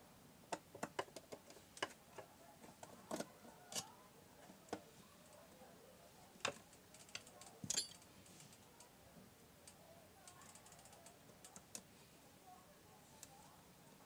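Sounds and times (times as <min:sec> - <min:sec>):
small parts clicking and tapping: 0:00.5 - 0:04.0, 0:06.4 - 0:08.9, 0:09.6 - 0:11.9.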